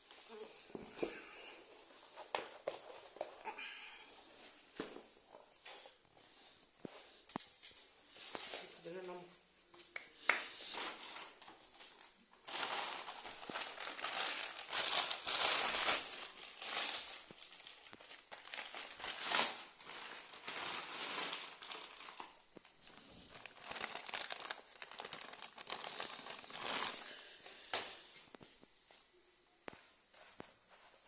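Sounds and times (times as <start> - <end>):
plastic mailer bag crinkling: 12.4 - 27.2.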